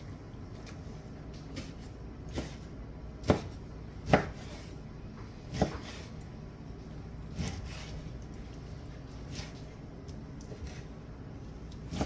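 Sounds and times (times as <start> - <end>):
knife chopping on wooden board: 1.5 - 4.7, 5.5 - 6.1.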